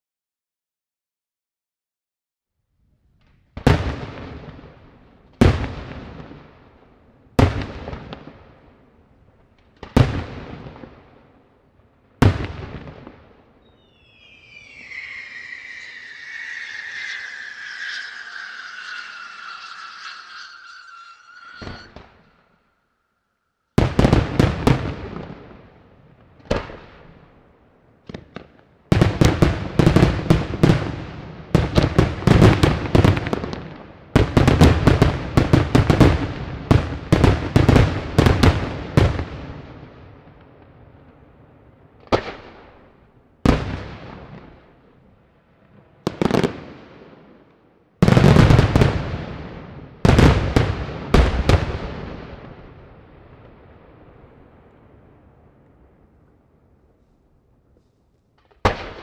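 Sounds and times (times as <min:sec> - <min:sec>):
fireworks bursting with loud bangs: 0:12.2 - 0:22.2, 0:48.0 - 0:55.9.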